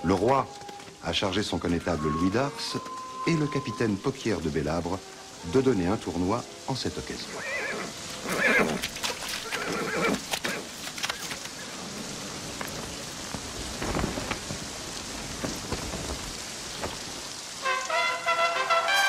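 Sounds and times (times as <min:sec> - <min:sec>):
steady hiss: 0:00.0 - 0:08.8, 0:09.5 - 0:18.9
horse whinnying: 0:07.3 - 0:11.3.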